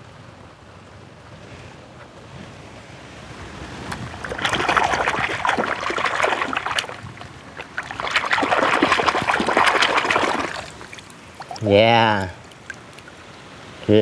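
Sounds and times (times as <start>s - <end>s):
hand splashing water: 4.0s - 11.7s.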